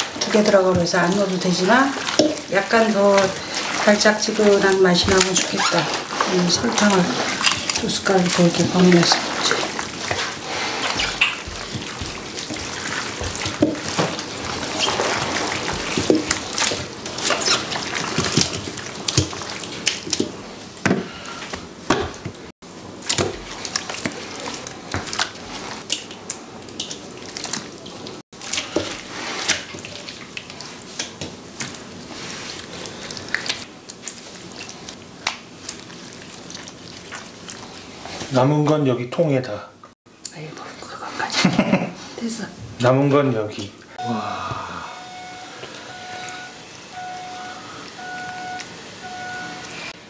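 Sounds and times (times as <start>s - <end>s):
wet squelching of seasoning paste: 0.0s - 20.7s, 22.9s - 38.8s.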